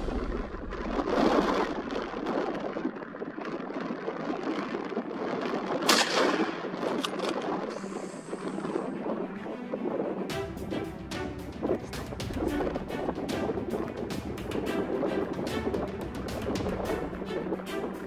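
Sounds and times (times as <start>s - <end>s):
steady rushing noise: 0.0s - 18.0s
gunshot: 5.9s - 6.7s.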